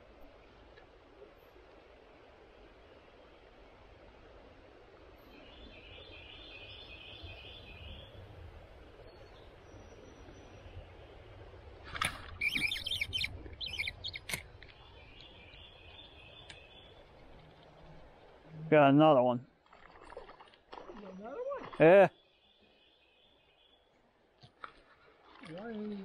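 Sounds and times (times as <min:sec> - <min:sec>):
songbirds singing: 0:05.2 - 0:11.7, 0:12.3 - 0:18.5, 0:20.8 - 0:24.2.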